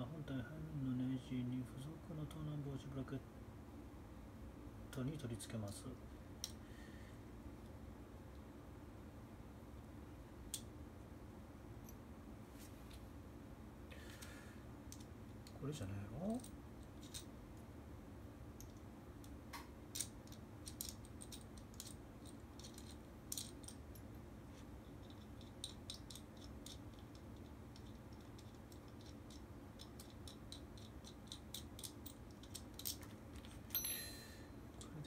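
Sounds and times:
small parts clicking and scraping: 14.0 - 15.6, 16.3 - 17.3, 18.6 - 35.0.

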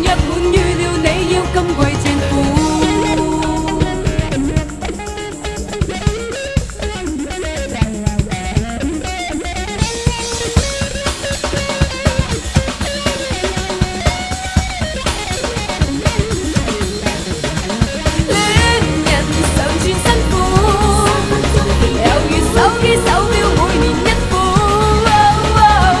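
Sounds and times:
pop song: 0.0 - 6.2, 18.2 - 26.0
guitar: 0.0 - 26.0
drum kit hits: 1.8 - 9.0.

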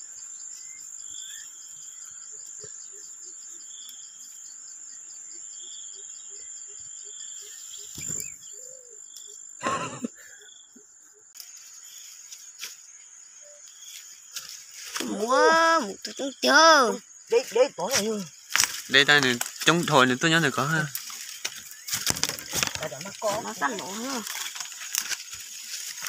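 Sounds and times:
insects chirring: 0.0 - 26.0.

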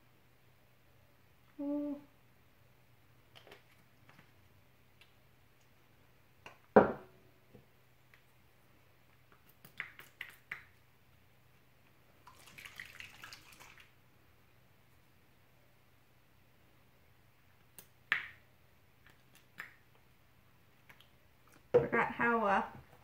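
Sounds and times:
soft wet squishing: 3.0 - 6.7, 7.7 - 14.0, 18.9 - 21.7.

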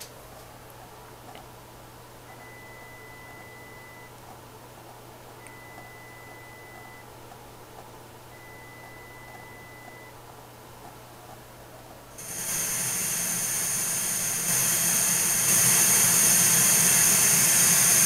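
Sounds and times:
faint low hum: 0.0 - 12.2
sine test tone: 2.3 - 4.1, 5.4 - 7.1, 8.3 - 10.1.

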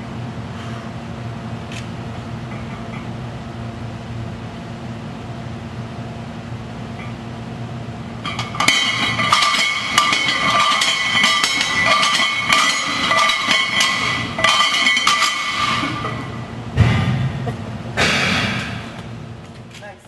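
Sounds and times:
barbell clanking: 8.2 - 16.5.

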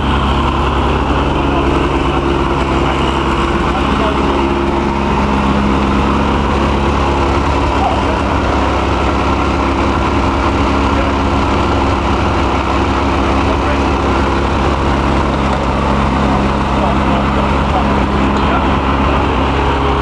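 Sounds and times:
snowmobile engine idling: 0.0 - 20.0.

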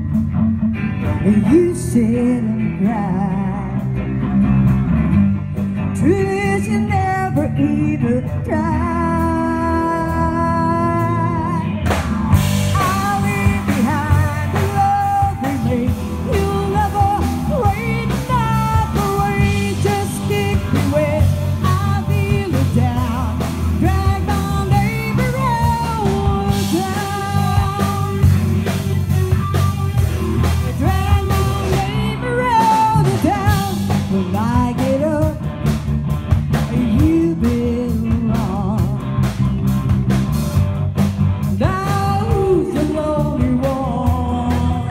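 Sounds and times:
bass guitar: 0.0 - 44.9
drum kit: 0.0 - 44.9
electric guitars: 0.0 - 44.9
pitch-bending lead melody: 8.0 - 38.4.

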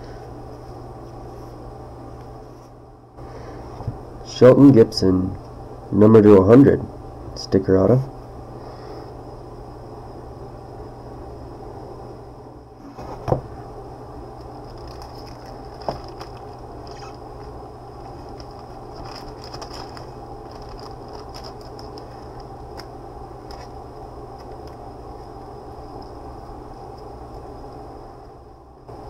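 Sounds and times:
low hum and hiss: 0.0 - 29.0
faint crackles: 14.4 - 27.9.

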